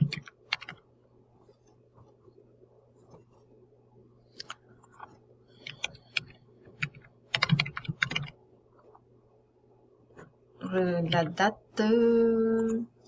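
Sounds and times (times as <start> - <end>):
keyboard typing: 0.0 - 0.8, 4.4 - 8.9.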